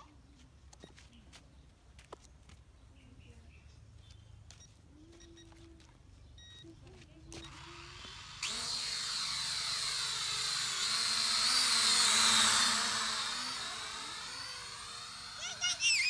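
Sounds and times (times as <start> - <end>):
drone propellers buzzing: 7.3 - 16.0.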